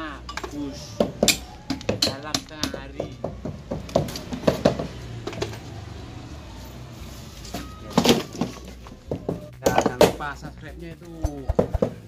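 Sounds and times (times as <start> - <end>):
wooden boards knocking and clattering: 1.0 - 5.5, 7.6 - 10.2.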